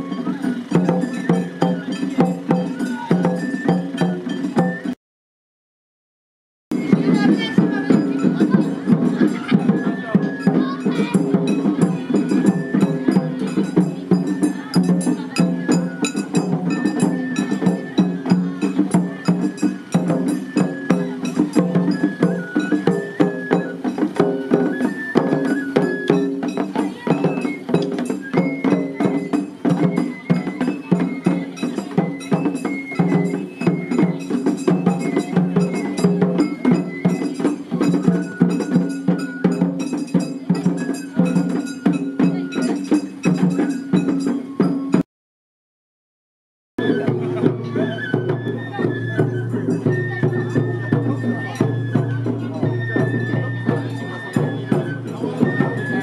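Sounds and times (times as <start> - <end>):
bamboo flute melody: 0.0 - 5.0, 6.7 - 45.0, 46.8 - 56.0
fast drum strikes: 0.0 - 5.0, 6.7 - 45.0
metal bell strikes: 34.0 - 44.8.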